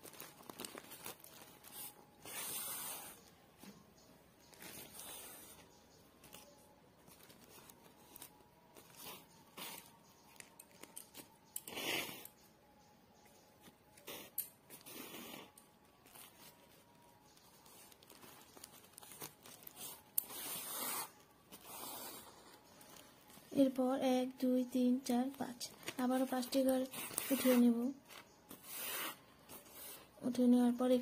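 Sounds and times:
yarn pulled through plastic sack: 0:17.4 - 0:23.4.

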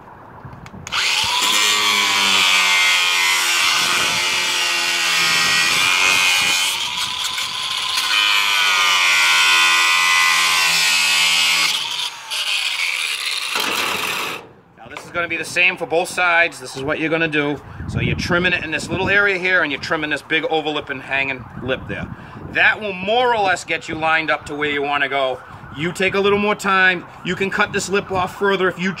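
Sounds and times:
angle grinder cutting plastic: 0:00.8 - 0:14.4.

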